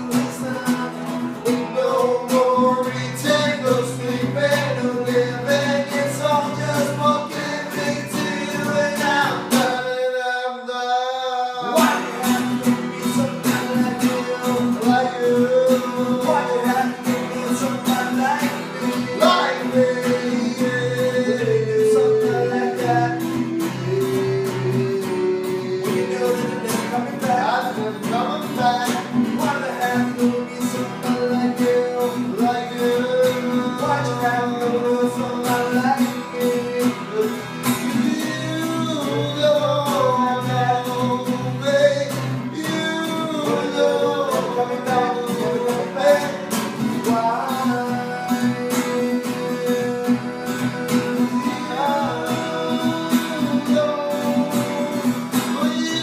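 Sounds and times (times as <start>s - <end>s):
acoustic guitar chords: 0.0s - 56.0s
person singing: 0.0s - 56.0s.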